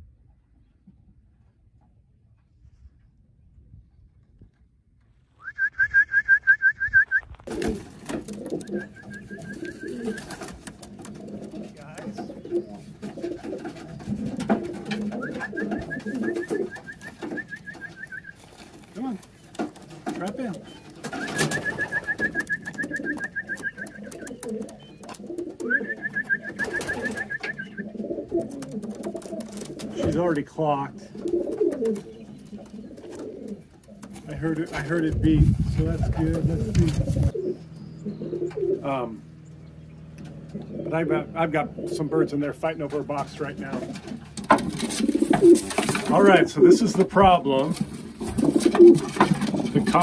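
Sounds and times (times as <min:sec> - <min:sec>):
pigeons cooing: 0:07.5 - 0:50.0
bird chirping: 0:08.3 - 0:29.1, 0:31.2 - 0:34.1, 0:37.1 - 0:44.3
fast chirp trills: 0:08.5 - 0:10.4, 0:20.6 - 0:28.0
sharp taps and clicks: 0:14.3 - 0:30.4.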